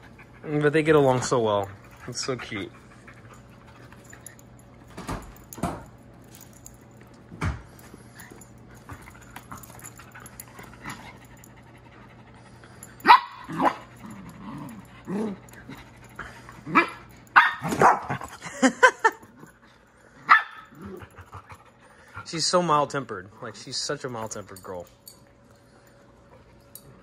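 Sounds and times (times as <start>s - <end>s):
dogs barking: 13.0s - 14.0s, 16.7s - 18.3s, 20.2s - 21.0s.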